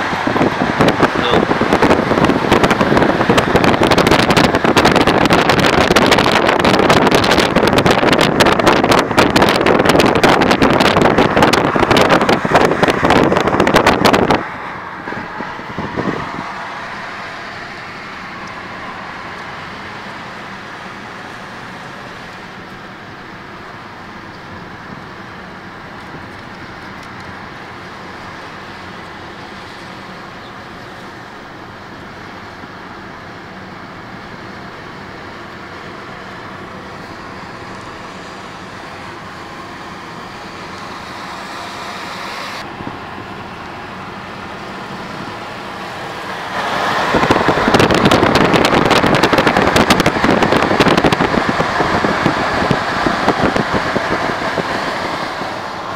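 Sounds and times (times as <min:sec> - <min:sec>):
wind buffeting microphone: 0:00.0 - 0:19.6, 0:44.1 - 0:55.9
car road and wind noise: 0:00.0 - 0:55.9.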